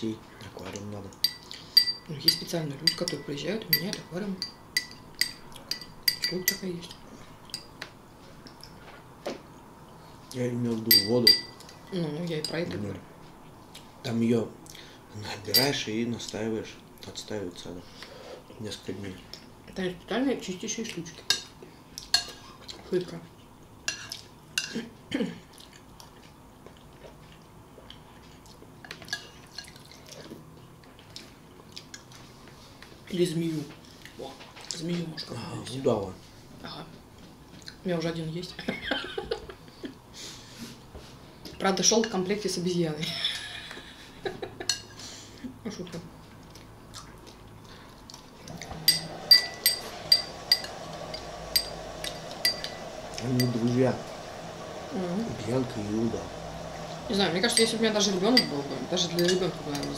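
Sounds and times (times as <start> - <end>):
spoons clinking against bowls: 1.2 - 7.7, 10.9 - 12.7, 15.5 - 15.9, 21.3 - 21.5, 22.1 - 22.4, 44.6 - 44.9, 48.8 - 53.7, 57.4 - 59.9.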